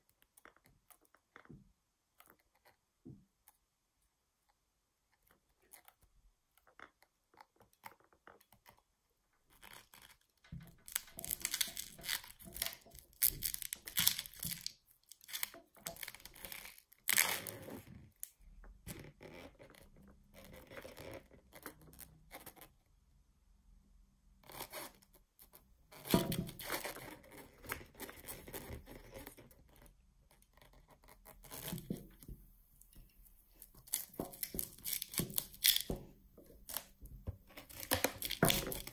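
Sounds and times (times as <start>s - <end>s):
rubber balloon creaking: 9.6s - 18.2s, 18.8s - 22.4s, 25.9s - 32.5s, 33.5s - 38.9s.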